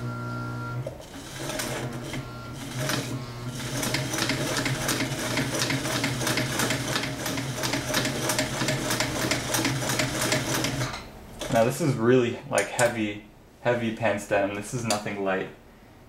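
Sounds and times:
sewing machine stitching: 0.8 - 11.6.

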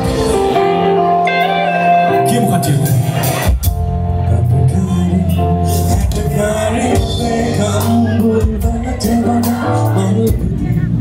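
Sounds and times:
person singing: 4.2 - 11.0.

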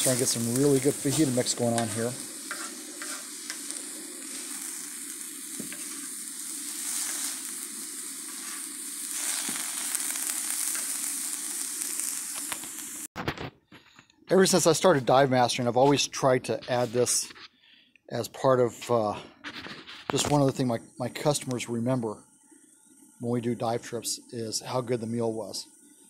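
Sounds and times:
plastic spoon scraping griddle: 0.0 - 3.6
meat and vegetables sizzling: 0.0 - 13.1.

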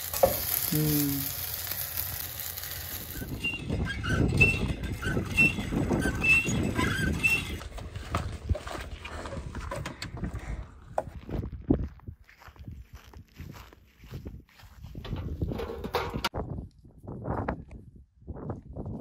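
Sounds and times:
pancakes sizzling in a frying pan: 0.0 - 3.4
wind rumble on microphone: 2.9 - 19.0
hand pump handle squeaking: 3.1 - 8.4.

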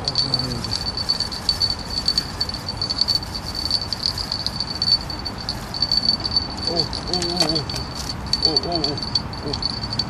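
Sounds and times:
fishing bell jingling: 0.0 - 10.0.

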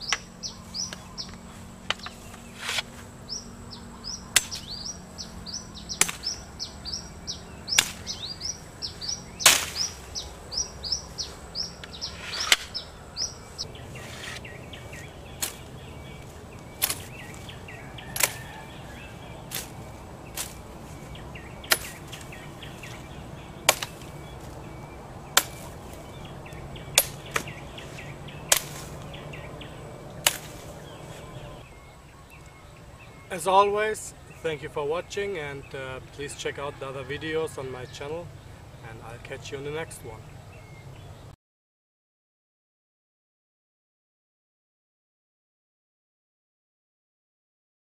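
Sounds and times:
machete chopping vegetation: 0.0 - 3.1, 4.2 - 31.6
bird chirping: 0.0 - 41.4.

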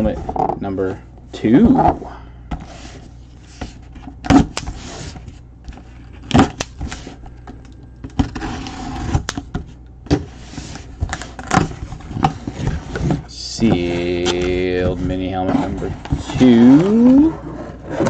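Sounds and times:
cardboard scraping and rustling: 2.6 - 7.2, 8.2 - 9.3, 10.1 - 18.0.

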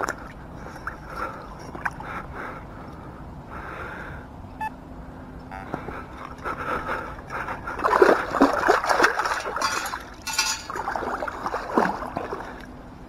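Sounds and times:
lake water splashing and sloshing: 0.0 - 2.6, 6.1 - 13.0.

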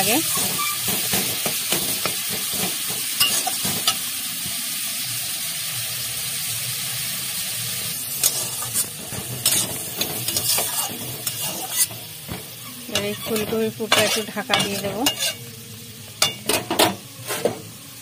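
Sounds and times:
food sizzling in a pan: 0.0 - 18.0
utensil scraping a pan: 0.1 - 4.0, 8.0 - 15.5, 16.2 - 17.6.

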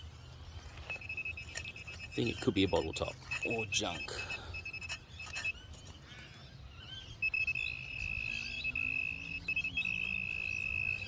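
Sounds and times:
metal detector pinpointer tone: 0.8 - 5.6, 7.2 - 11.0.

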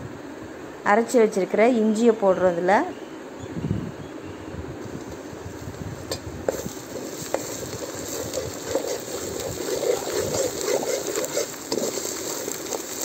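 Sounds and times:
paste sizzling in hot oil: 6.5 - 13.0
steel spoon scraping pot: 6.5 - 13.0.

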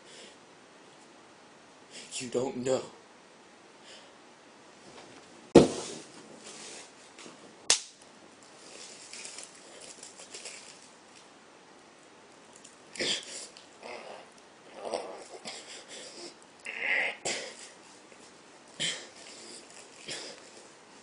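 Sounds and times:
person grunting and breathing: 13.0 - 17.8.

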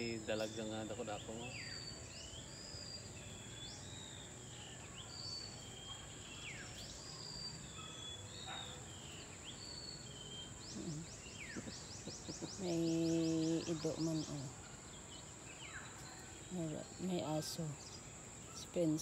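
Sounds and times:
high-pitched insect drone: 0.0 - 7.9
birds calling: 0.0 - 19.0.

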